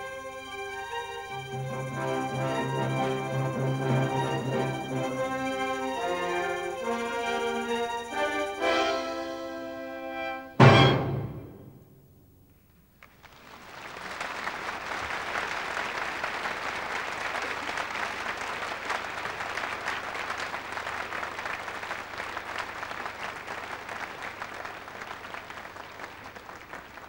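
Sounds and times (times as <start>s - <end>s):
audience applauding: 0.0s - 9.1s, 13.0s - 27.0s
orchestral chord: 0.0s - 12.0s.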